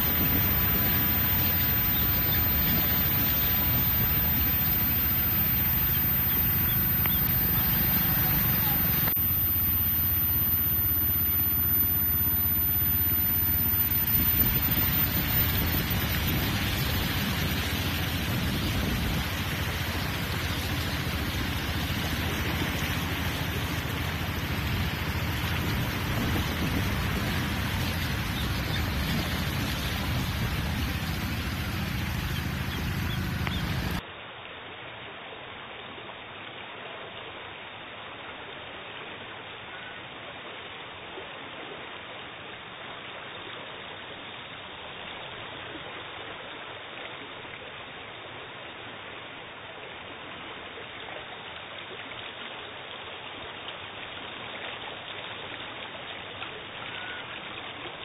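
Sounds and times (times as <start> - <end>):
bus and motorcycle engines running: 0.0 - 9.0, 14.4 - 34.0
floodwater rushing: 0.0 - 34.0
rain hissing: 0.0 - 34.0.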